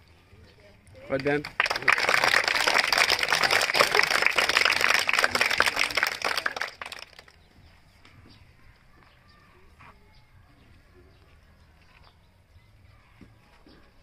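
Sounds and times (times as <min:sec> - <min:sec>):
small crowd applauding: 0:01.1 - 0:07.4.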